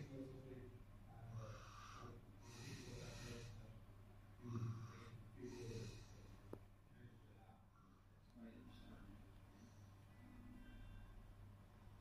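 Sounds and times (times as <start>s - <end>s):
person breathing: 1.3s - 3.7s, 4.4s - 6.6s.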